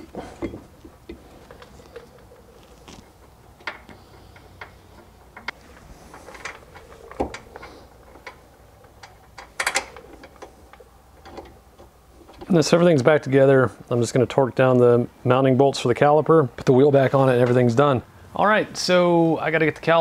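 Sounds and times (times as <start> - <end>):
metallic clicks and knocks: 3.5 - 12.5.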